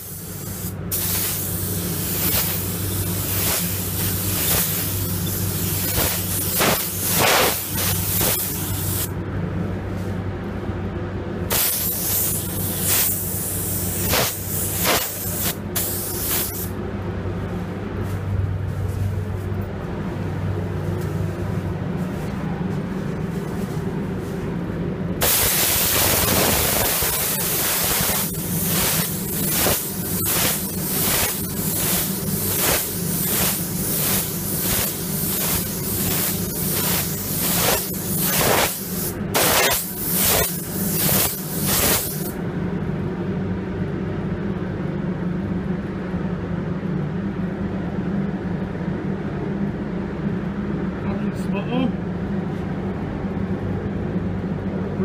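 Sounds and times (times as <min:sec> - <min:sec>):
paint spray gun hissing: 0:00.0 - 0:09.1, 0:11.5 - 0:16.7, 0:25.2 - 0:42.4
steady low hum: 0:00.0 - 0:55.0.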